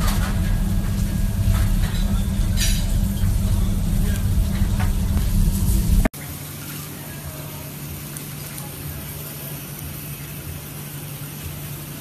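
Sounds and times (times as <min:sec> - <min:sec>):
low rumble: 0:00.0 - 0:06.1
skewers sizzling on grill: 0:00.0 - 0:12.0.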